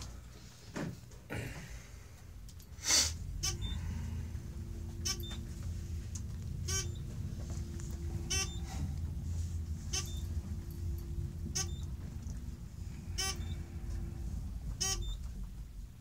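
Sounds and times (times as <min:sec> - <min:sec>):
elevator humming: 0:00.0 - 0:16.0
short electronic beep: 0:03.4 - 0:04.1, 0:04.9 - 0:05.6, 0:06.6 - 0:08.9, 0:09.8 - 0:12.0, 0:13.0 - 0:13.8.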